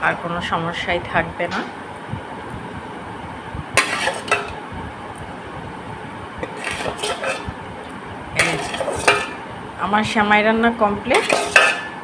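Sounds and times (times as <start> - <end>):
metal spoon clinking in bowl: 8.4 - 9.4, 11.1 - 12.0.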